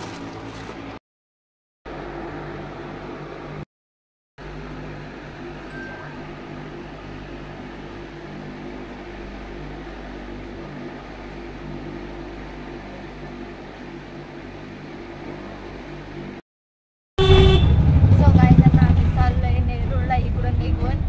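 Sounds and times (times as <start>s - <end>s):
electric fan humming: 4.4s - 16.4s.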